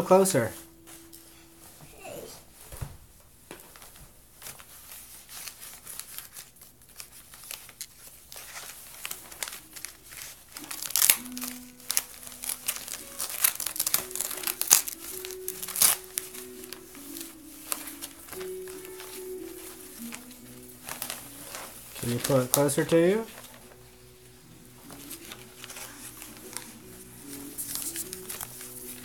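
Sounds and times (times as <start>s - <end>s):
wrapping paper crinkling: 3.6s - 29.0s
scissors cutting paper: 5.2s - 23.9s, 24.8s - 29.0s.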